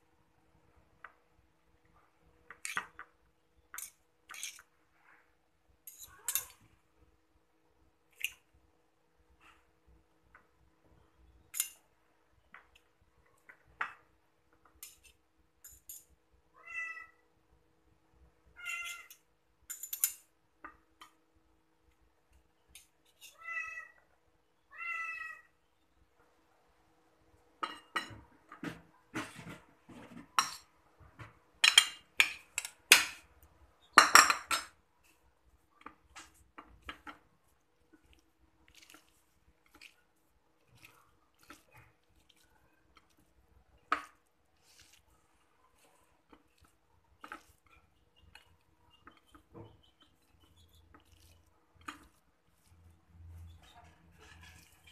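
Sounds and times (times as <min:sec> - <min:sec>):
cat meowing: 0:16.6 - 0:17.2, 0:18.6 - 0:19.1, 0:23.3 - 0:24.0, 0:24.7 - 0:25.6
cutlery clinking on plates: 0:18.9 - 0:20.3, 0:27.6 - 0:30.7.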